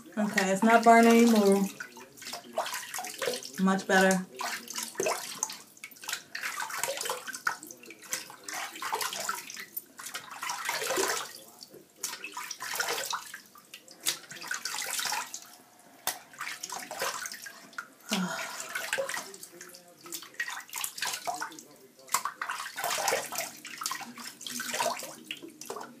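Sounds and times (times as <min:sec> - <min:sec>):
water splashing on face: 0:12.0 - 0:26.0.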